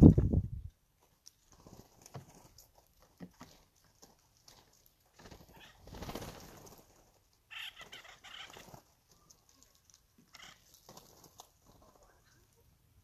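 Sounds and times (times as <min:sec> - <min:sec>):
birds' wingbeats: 0:01.4 - 0:02.7, 0:04.4 - 0:12.6.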